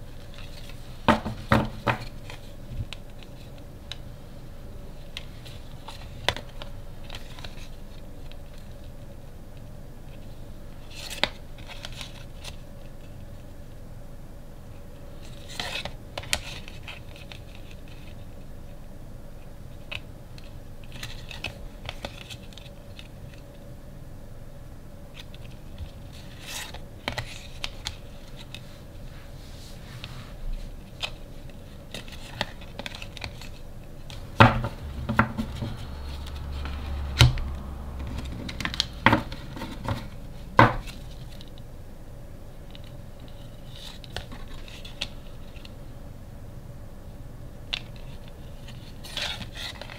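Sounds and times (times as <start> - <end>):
cards knocking on wooden table: 1.1 - 2.1, 34.4 - 36.0
cards clicking and rustling: 5.0 - 9.0, 10.9 - 13.2, 15.2 - 18.2, 19.8 - 23.5, 25.2 - 28.7, 30.6 - 41.7, 42.6 - 45.8, 47.7 - 49.9.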